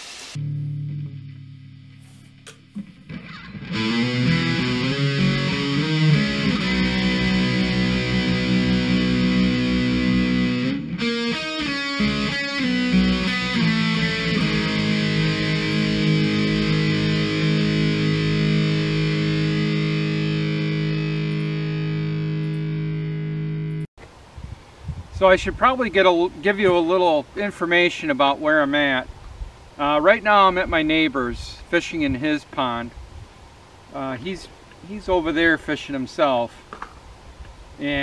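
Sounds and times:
distorted electric guitar chords: 0:00.0 - 0:23.9.

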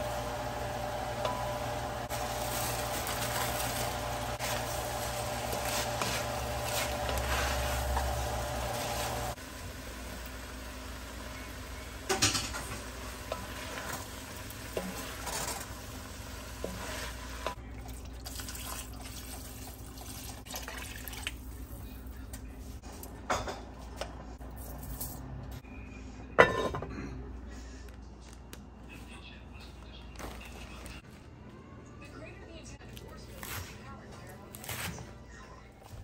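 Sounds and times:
broth pouring: 0:17.6 - 0:21.7.

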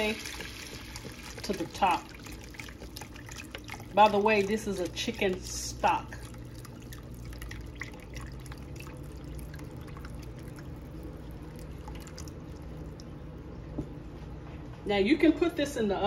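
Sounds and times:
liquid pouring into pan: 0:00.0 - 0:13.1.

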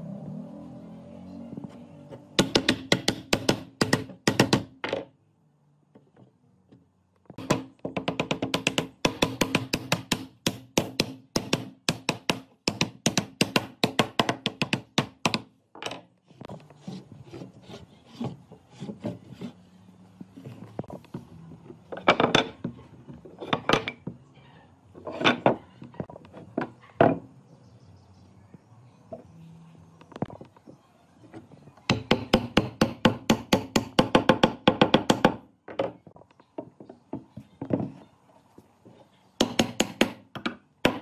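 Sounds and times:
hand tool rasping wood: 0:16.4 - 0:19.6.

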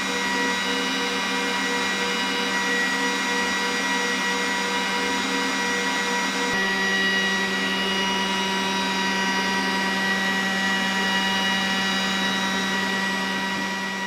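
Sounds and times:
whining tones: 0:00.0 - 0:14.0.

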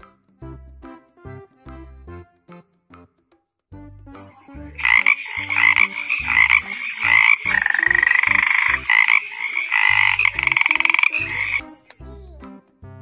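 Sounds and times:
children's tune with bass line: 0:00.0 - 0:13.0
frog croaking and trilling: 0:04.4 - 0:12.1.

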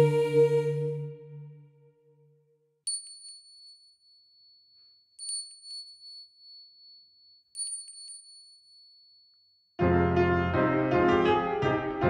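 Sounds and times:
small bell ringing: 0:02.9 - 0:09.8.

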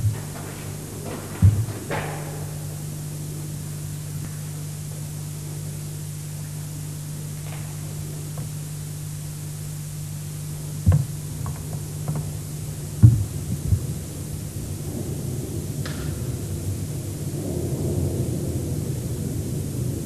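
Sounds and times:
background hiss: 0:00.0 - 0:20.0
low hum: 0:00.0 - 0:20.0
thud: 0:01.0 - 0:02.6.

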